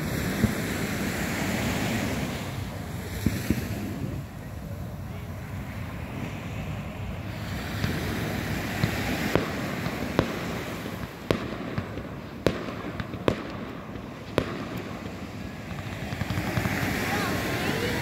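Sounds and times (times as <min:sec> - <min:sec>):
fireworks bangs: 0:07.2 - 0:18.0.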